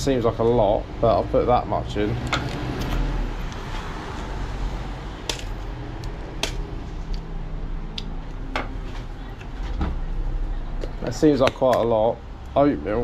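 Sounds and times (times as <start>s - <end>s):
cups and containers clicking: 5.2s - 6.7s, 10.8s - 12.0s.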